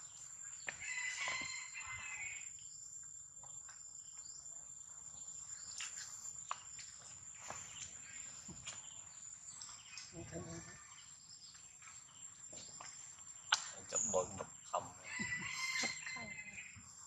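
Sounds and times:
high-pitched insect drone: 0:00.0 - 0:02.7, 0:13.9 - 0:17.0.

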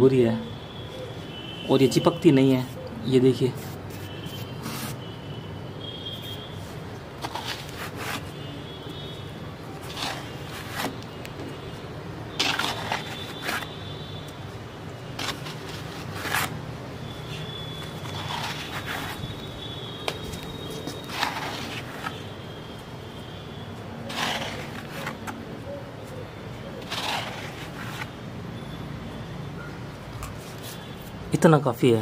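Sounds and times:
hand scraping sandy soil: 0:07.2 - 0:08.4, 0:09.8 - 0:11.0, 0:12.4 - 0:13.7, 0:18.0 - 0:19.2, 0:20.3 - 0:22.1, 0:24.0 - 0:25.3, 0:26.8 - 0:28.1.

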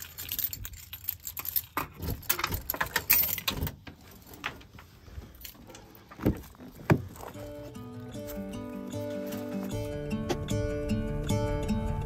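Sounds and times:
keys jangling on key ring: 0:00.0 - 0:03.6.

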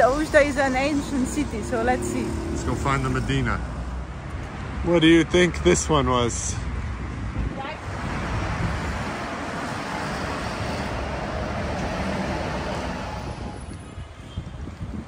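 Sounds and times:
car passing: 0:00.0 - 0:13.8.

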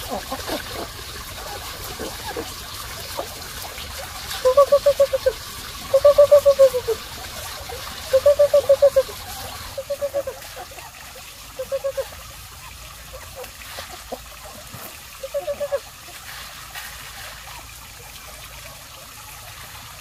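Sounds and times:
person calling chickens: 0:04.4 - 0:07.0, 0:08.1 - 0:10.6, 0:11.6 - 0:12.1, 0:15.2 - 0:15.8.

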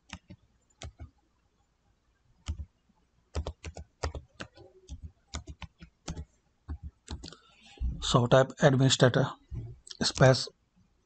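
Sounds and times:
computer keyboard key clicks: 0:03.4 - 0:07.4.

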